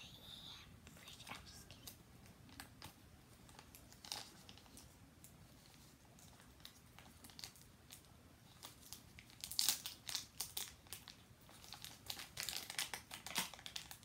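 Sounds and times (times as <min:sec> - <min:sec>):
packaging crinkling and tearing: 0:02.5 - 0:04.9, 0:06.2 - 0:14.0.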